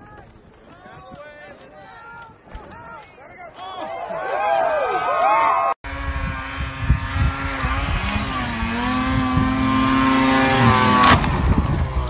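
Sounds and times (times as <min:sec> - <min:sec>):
snowmobile engine revving: 0:05.8 - 0:12.0
snowmobile crashing into tree: 0:08.9 - 0:11.8.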